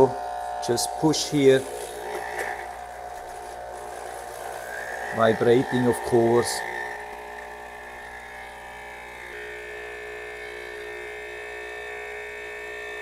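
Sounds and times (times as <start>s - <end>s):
espresso machine pump buzzing: 0.0s - 13.0s.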